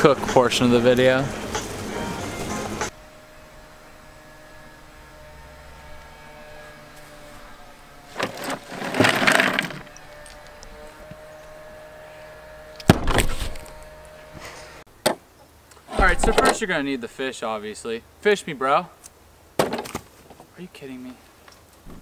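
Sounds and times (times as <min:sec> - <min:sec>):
ice rattling: 0:08.1 - 0:10.4.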